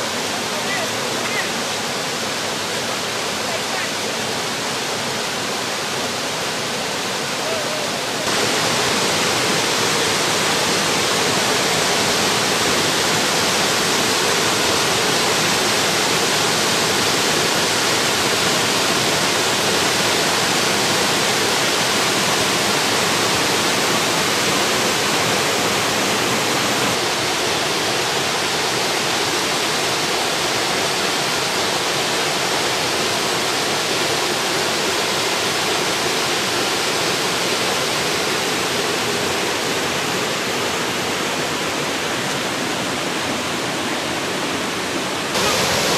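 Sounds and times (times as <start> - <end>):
waterfall rushing into pool: 0.0 - 45.9.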